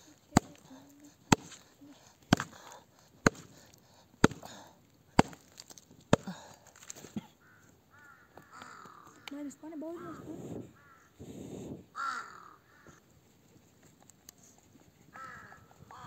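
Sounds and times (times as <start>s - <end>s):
axe chopping firewood: 0.3s - 7.2s
crow cawing: 7.4s - 9.4s, 10.8s - 11.1s, 12.0s - 13.0s, 15.2s - 16.0s.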